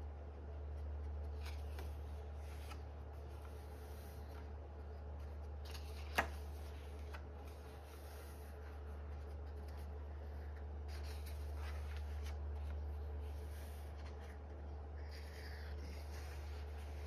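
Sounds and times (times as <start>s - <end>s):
steady low hum: 0.0s - 17.0s
paper pages rustling: 1.0s - 4.6s, 5.2s - 17.0s.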